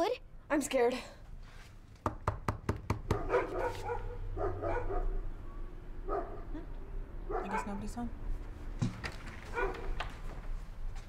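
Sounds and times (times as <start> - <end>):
knuckles knocking on door: 2.0 - 3.3
dog barking: 3.1 - 5.2, 6.1 - 6.5, 7.3 - 7.8, 9.5 - 10.0.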